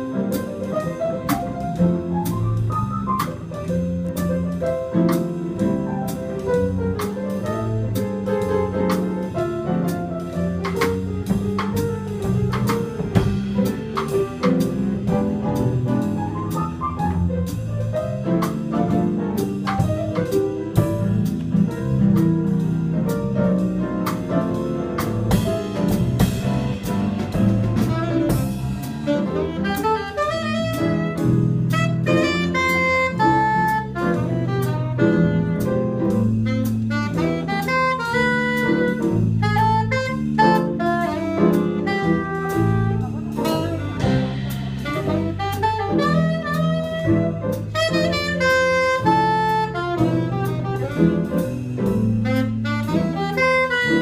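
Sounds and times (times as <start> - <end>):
drum kit: 0.0 - 54.0
piano: 0.0 - 54.0
saxophone: 27.7 - 54.0.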